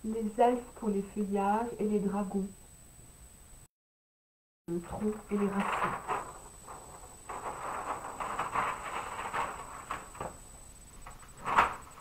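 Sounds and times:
paper sheets rustling: 4.8 - 12.0
paper slap: 5.4 - 10.4, 11.0 - 12.0.

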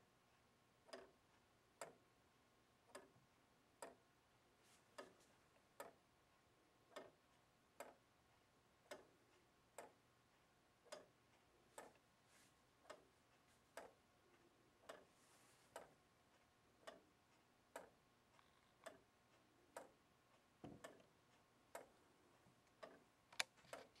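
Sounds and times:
wooden clock ticking: 2.8 - 4.1, 12.8 - 15.1, 16.8 - 22.0.

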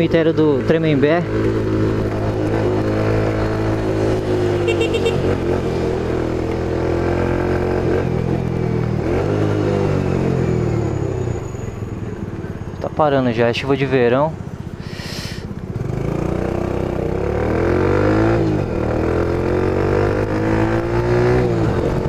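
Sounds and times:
scooter engine running: 1.3 - 6.0.

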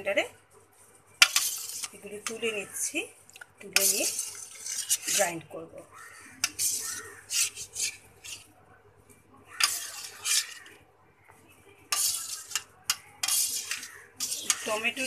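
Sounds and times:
metal utensil scraping steel bowl: 1.2 - 2.7, 3.6 - 5.5, 6.3 - 8.5, 9.6 - 10.8, 11.9 - 15.0.

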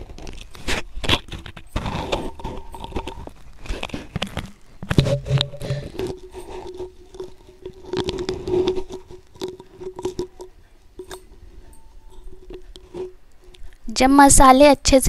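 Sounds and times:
faint steady hum: 0.0 - 15.0
spatula scraping metal pan: 4.8 - 13.8.

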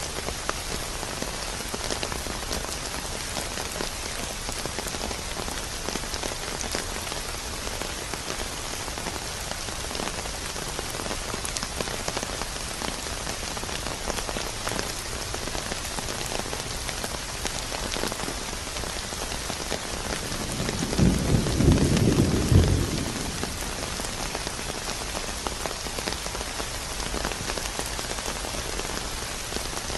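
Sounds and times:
heavy rain falling: 0.0 - 29.9
low roll of thunder: 20.4 - 24.2.

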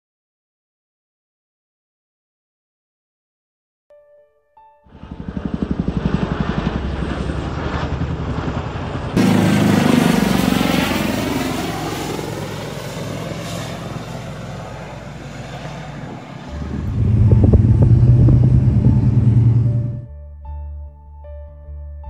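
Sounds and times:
aircraft passing whoosh: 4.9 - 20.1
helicopter rotors chopping: 4.9 - 20.1.

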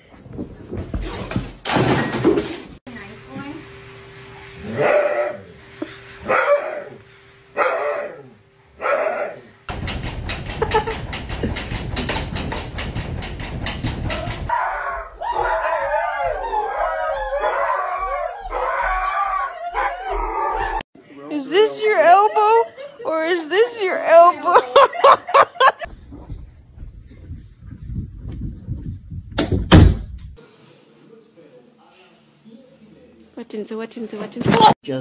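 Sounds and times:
dog howling: 7.6 - 9.5, 14.5 - 20.8
dog claws scratching glass door: 9.7 - 14.5.

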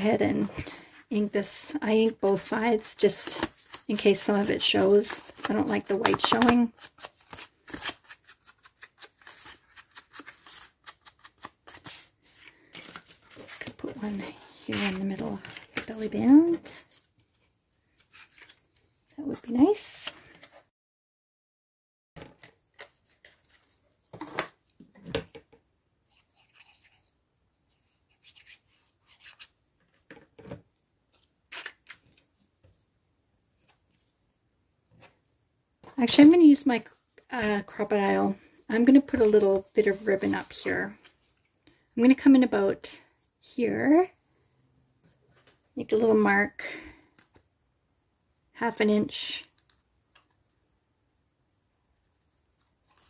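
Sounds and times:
paper rustling and rubbing: 2.0 - 15.8.

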